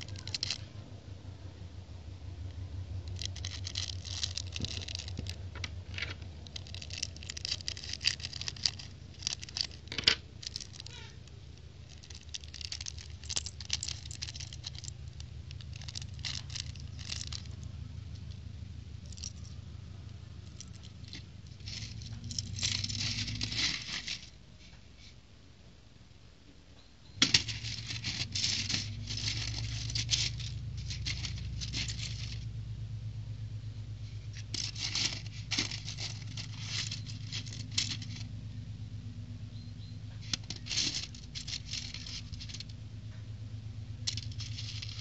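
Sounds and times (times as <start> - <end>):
plastic bricks clicking: 0.0 - 0.6, 3.0 - 18.3, 20.6 - 24.3, 27.2 - 32.4, 34.4 - 38.3, 40.2 - 42.7, 44.0 - 45.0
plastic bags crinkling: 0.0 - 0.7, 3.0 - 18.4, 19.0 - 19.6, 20.4 - 24.4, 27.2 - 32.5, 34.3 - 38.4, 40.2 - 42.7, 44.0 - 45.0
low steady rumble: 0.0 - 45.0.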